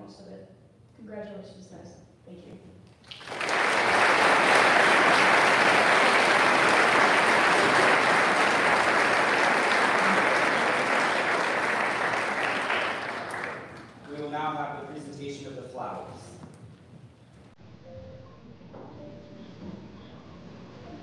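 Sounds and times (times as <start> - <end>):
audience applauding: 3.0 - 14.7.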